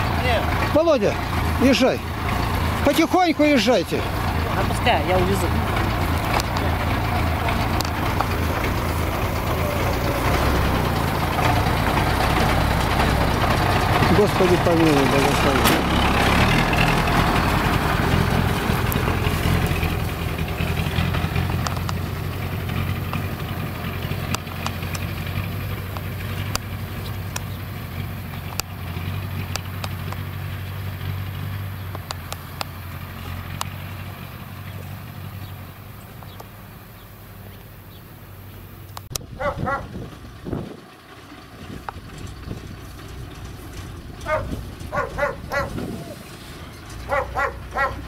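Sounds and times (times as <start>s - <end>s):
heavy truck engine pulling away: 0.0s - 48.0s.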